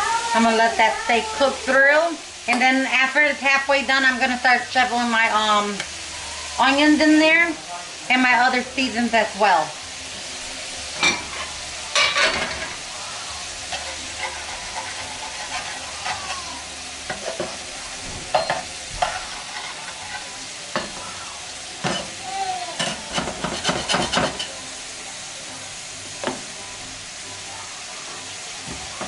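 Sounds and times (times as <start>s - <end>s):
patties sizzling in oil: 0.0s - 29.0s
metal spatula scraping pans: 10.9s - 13.0s, 13.6s - 21.2s, 21.8s - 24.7s.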